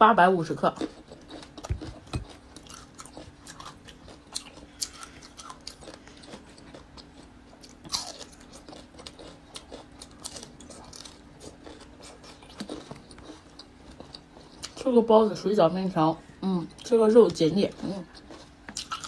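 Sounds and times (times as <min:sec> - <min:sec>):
crunching and chewing: 0:00.6 - 0:14.9, 0:16.7 - 0:19.0.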